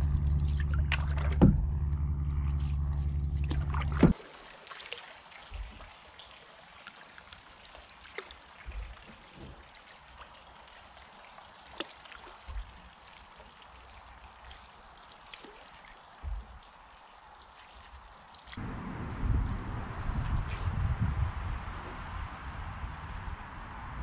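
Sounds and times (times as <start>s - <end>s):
small splashes: 0.0s - 1.7s, 2.3s - 18.6s
soft low thumps: 0.0s - 4.2s, 5.6s - 5.9s, 16.2s - 16.6s
paddle dipping and dripping: 0.0s - 24.0s.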